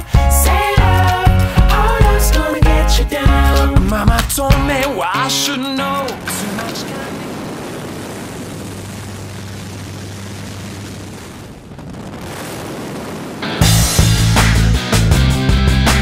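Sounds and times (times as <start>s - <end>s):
wind rushing: 6.0s - 14.5s
plane engine drone: 6.2s - 11.8s.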